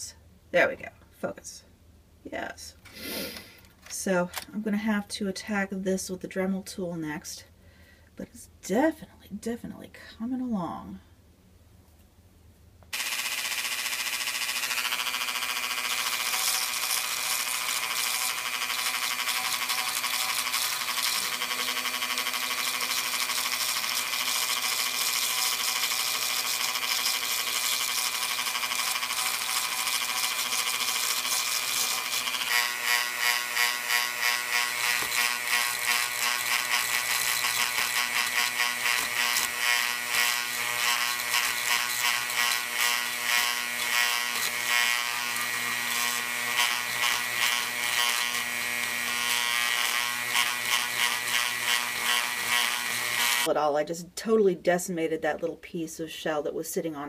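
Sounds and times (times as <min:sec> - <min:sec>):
rotary tool grinding: 0:12.9 - 0:53.5.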